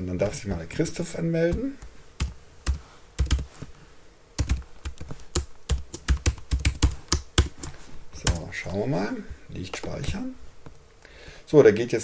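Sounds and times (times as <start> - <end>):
keyboard typing: 1.5 - 3.7, 4.4 - 8.5.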